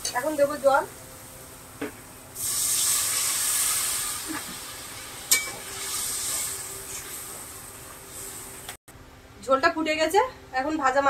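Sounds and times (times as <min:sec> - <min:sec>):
water hissing in hot pan: 0:02.3 - 0:08.7.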